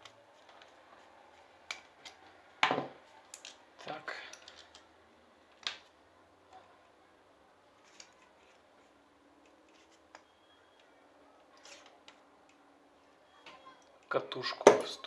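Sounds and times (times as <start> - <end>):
light clicks and handling noises: 3.0 - 4.9, 7.7 - 14.1.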